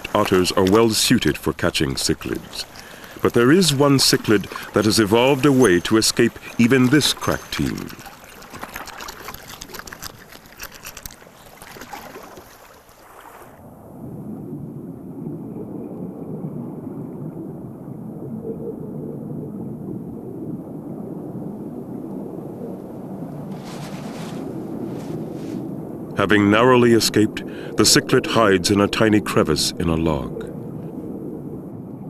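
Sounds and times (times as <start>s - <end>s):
water splashing and dripping: 0.0s - 13.6s
muffled underwater rush: 0.0s - 32.0s
small clicks: 5.4s - 12.8s.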